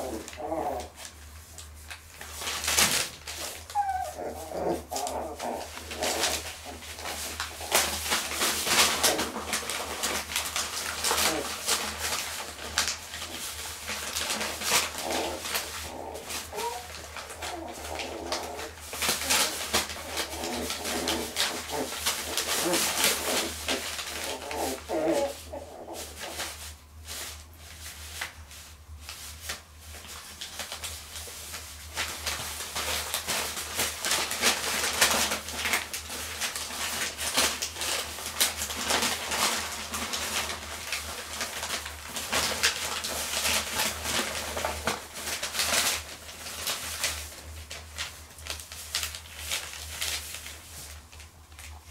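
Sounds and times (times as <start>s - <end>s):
puppy whimpers and grunts: 0.0s - 1.0s, 3.6s - 7.2s, 14.9s - 26.3s
newspaper crinkling and rustling: 0.0s - 51.9s.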